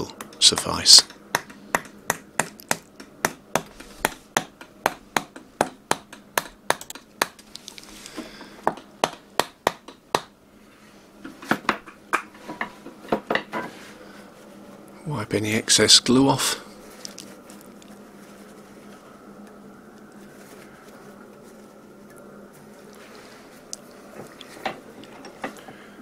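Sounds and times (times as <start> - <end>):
hammering wooden wedge knocks: 0.1 - 7.4, 8.6 - 10.3.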